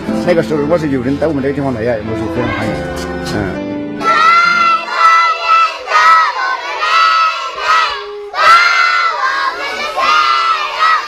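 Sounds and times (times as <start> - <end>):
children shouting in unison: 4.0 - 11.0.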